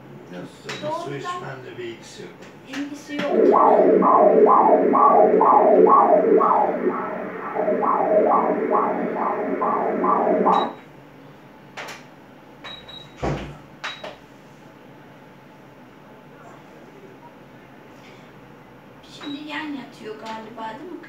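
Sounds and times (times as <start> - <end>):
rhythmic ultrasound whooshing pulses: 3.2 - 10.8.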